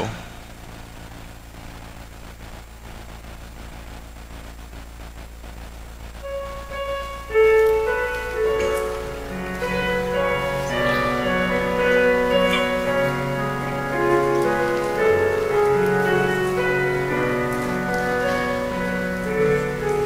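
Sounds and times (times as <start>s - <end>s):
slow keyboard music: 6.2s - 20.0s.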